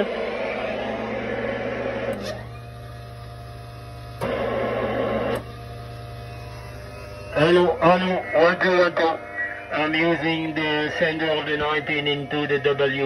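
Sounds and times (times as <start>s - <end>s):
steady hum: 0.0s - 13.0s
radio receiver hiss: 4.2s - 12.8s.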